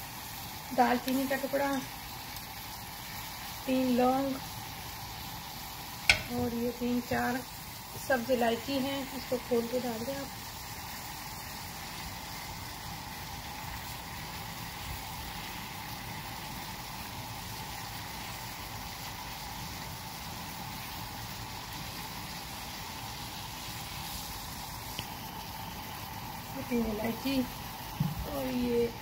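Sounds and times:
water boiling in saucepan: 0.0 - 29.0.

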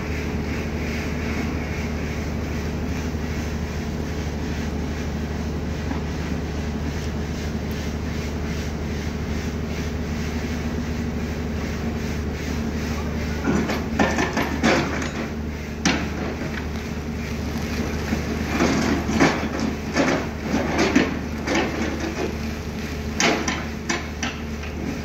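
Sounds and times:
excavator diesel engine running: 0.0 - 25.0.

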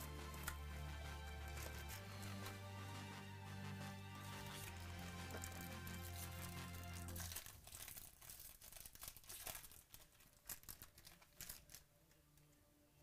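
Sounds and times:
foil wrapper crinkling and tearing: 4.5 - 11.9.

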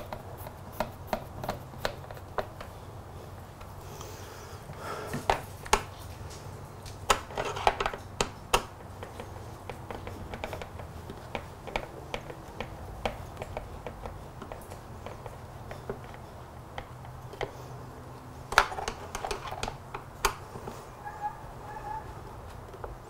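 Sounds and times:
clicks and taps of hand tools: 5.1 - 17.6.

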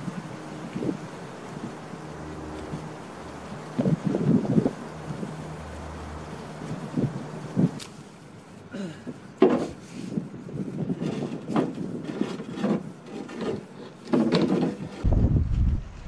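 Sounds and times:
wooden canoe knocks and scrapes: 9.4 - 10.0, 10.8 - 15.1
low rumble: 15.0 - 16.0.

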